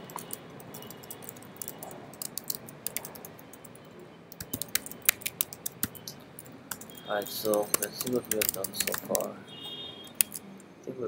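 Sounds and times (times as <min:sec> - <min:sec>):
keyboard key clicks: 0:00.0 - 0:03.8, 0:04.4 - 0:09.2, 0:10.2 - 0:10.4.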